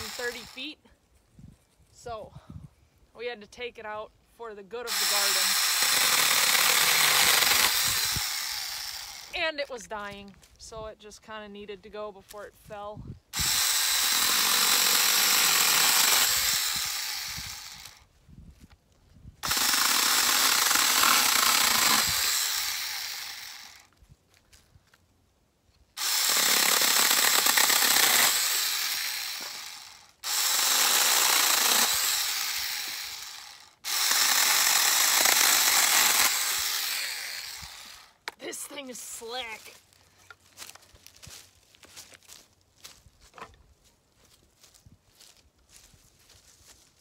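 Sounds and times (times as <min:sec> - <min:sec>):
mini chainsaw cutting branches: 0:00.0 - 0:00.8, 0:04.9 - 0:09.5, 0:13.4 - 0:18.1, 0:19.4 - 0:23.9, 0:26.0 - 0:39.8.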